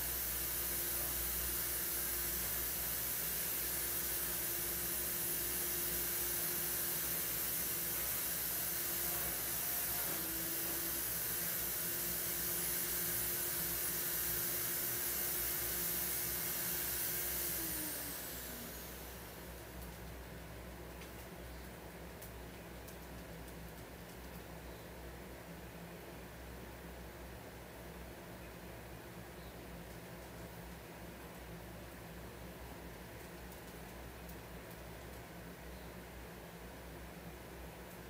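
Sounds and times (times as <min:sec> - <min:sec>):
electric motor appliance running: 0:00.0 - 0:19.6
motor whine winding down: 0:00.0 - 0:19.6.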